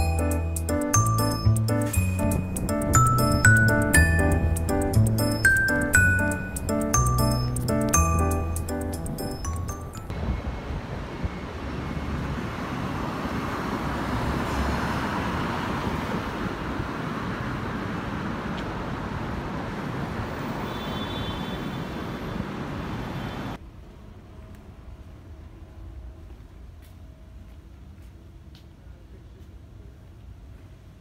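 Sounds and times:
passing cars: 1.7s - 23.6s.

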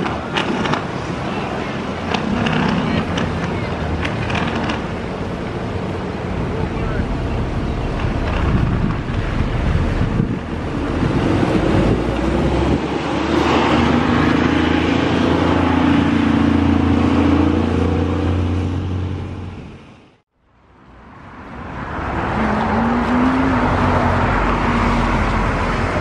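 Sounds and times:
jet engines rumbling: 0.0s - 20.2s.

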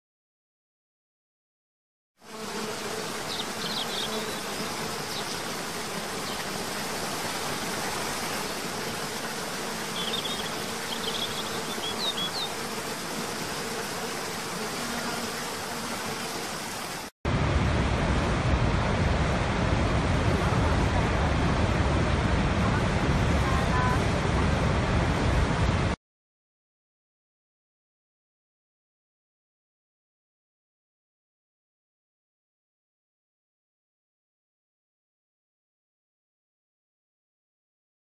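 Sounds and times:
bird chirps: 3.3s - 5.4s, 10.0s - 12.6s
deep roar of huge waterfall: 17.3s - 26.0s.

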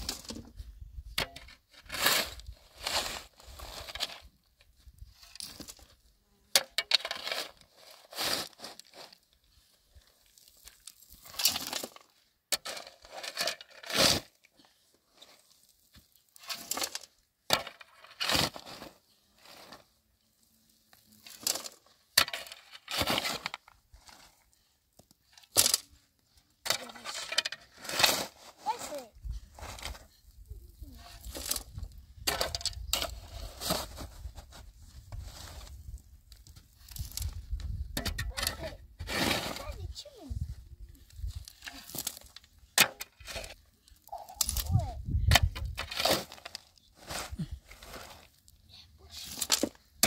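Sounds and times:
shovel scraping gravel: 0.0s - 0.5s, 1.2s - 4.3s, 5.2s - 6.0s, 6.6s - 9.3s, 10.0s - 14.5s, 15.1s - 20.0s, 21.0s - 24.5s, 25.3s - 26.0s, 26.6s - 30.1s, 30.8s - 50.0s
stones tipped into metal wheelbarrow: 0.0s - 4.3s, 6.5s - 9.2s, 10.5s - 14.4s, 15.9s - 19.8s, 21.2s - 24.3s, 25.3s - 25.9s, 26.6s - 28.8s, 31.2s - 39.8s, 41.2s - 48.4s, 49.2s - 50.0s.

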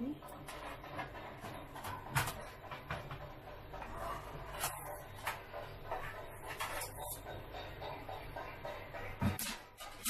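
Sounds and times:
metal knocking on steel pan: 5.4s - 9.8s.

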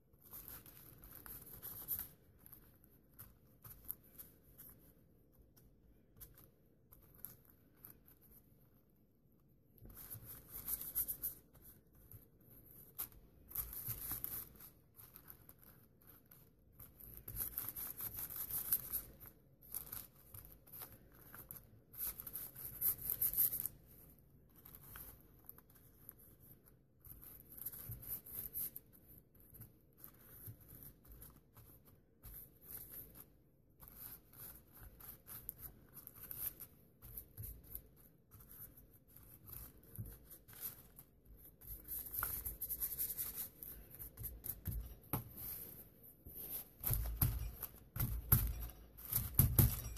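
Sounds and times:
paintbrush scrubbing on paper: 27.1s - 47.9s.

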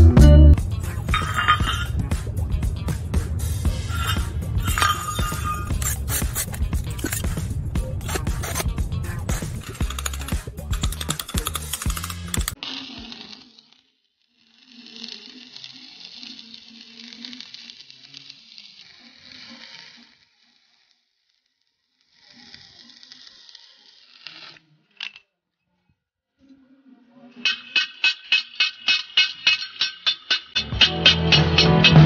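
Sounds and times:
welding arc crackling: 0.6s - 13.6s, 14.3s - 24.4s
sharp click: 5.7s - 12.6s.

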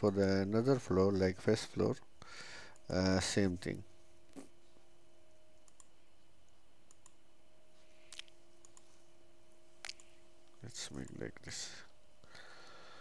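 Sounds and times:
faint steady hum: 0.0s - 13.0s
computer mouse clicks: 5.6s - 6.0s, 6.9s - 7.2s, 8.1s - 8.9s.

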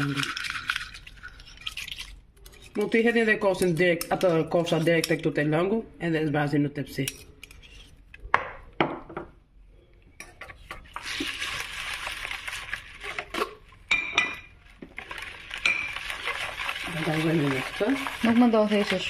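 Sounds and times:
wire whisk rattling in bowl: 0.0s - 2.8s, 15.0s - 19.0s.

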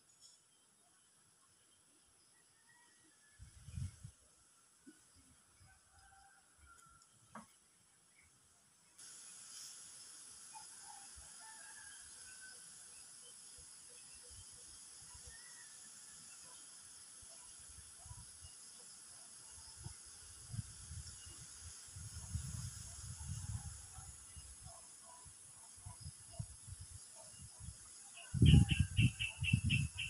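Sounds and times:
high-pitched hiss: 8.9s - 30.0s.

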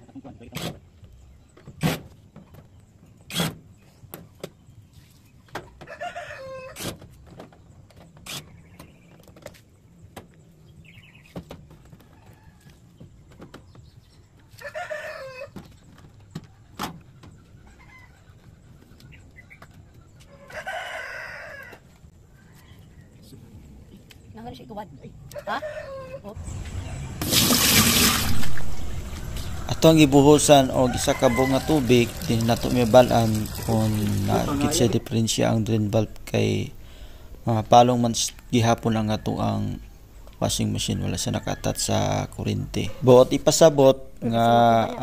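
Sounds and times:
rooster crowing: 5.9s - 6.8s, 14.6s - 15.5s, 20.3s - 21.8s, 29.1s - 33.0s.

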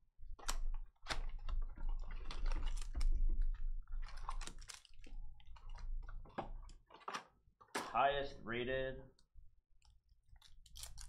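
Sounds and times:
foil card packs rustling: 0.5s - 7.2s
plastic shrink wrap crinkling and tearing: 1.0s - 6.2s, 10.3s - 11.0s.

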